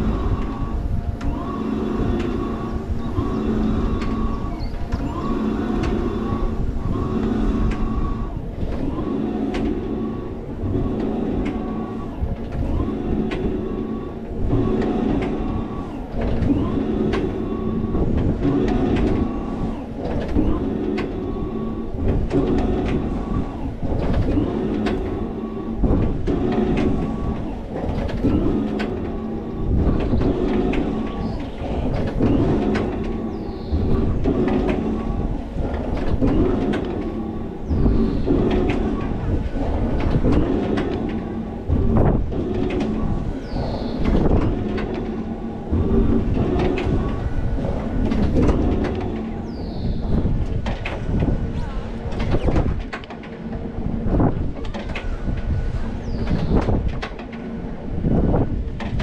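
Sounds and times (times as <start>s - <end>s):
ride car rattles and clicks: 0.0s - 59.0s
ride drive hum and whine: 0.0s - 59.0s.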